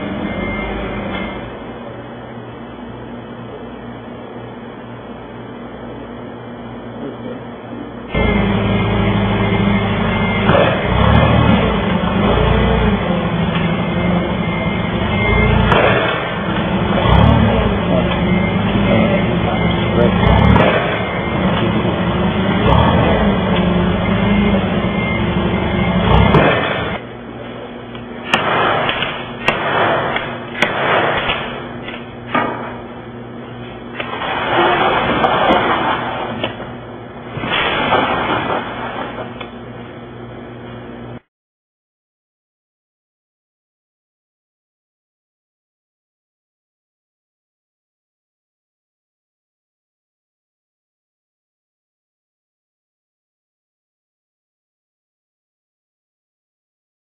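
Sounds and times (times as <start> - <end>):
forklift engine running: 0.0 - 41.2.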